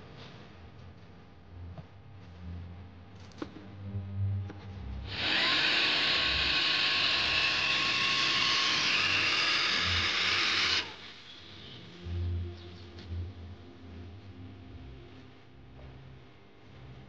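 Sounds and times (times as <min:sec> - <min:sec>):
cordless drill running: 0:05.1 - 0:11.6.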